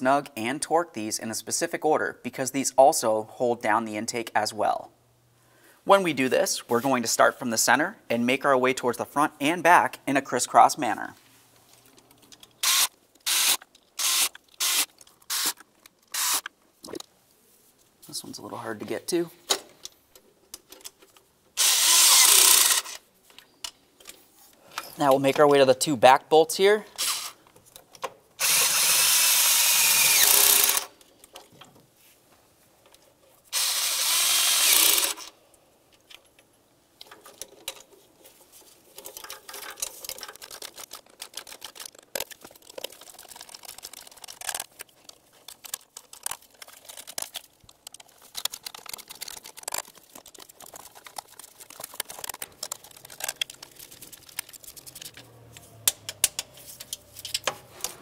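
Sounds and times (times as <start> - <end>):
power tool spinning bolts: 12.6 - 16.5, 21.6 - 23.0, 27.0 - 27.4, 28.4 - 30.9, 33.5 - 35.3
clicks and rattles of tools: 35.9 - 58.0.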